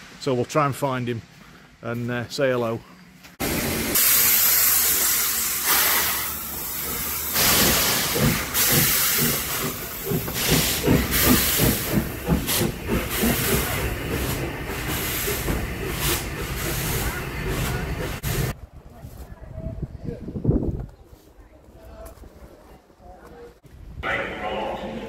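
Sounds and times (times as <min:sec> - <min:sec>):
steam hissing: 0:03.4 - 0:18.5
steam locomotive exhaust beats: 0:03.4 - 0:18.6.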